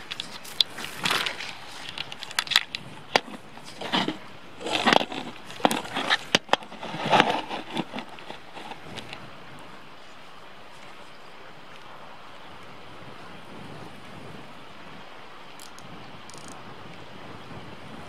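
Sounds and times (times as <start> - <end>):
camera handling rustles: 0.0 - 9.2.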